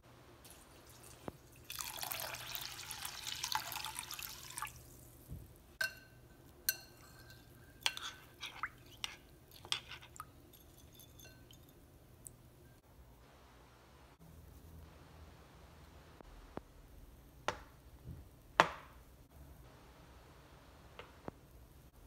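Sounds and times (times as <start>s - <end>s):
water pouring into bowl: 0.5s - 5.1s
spoon clinking on glass bowl: 5.8s - 11.8s
spoon stirring wet rice: 5.8s - 12.4s.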